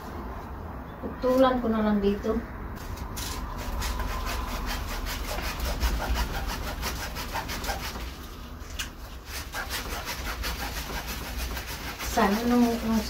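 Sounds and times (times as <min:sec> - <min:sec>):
blade sawing plant stem: 0:02.8 - 0:13.0.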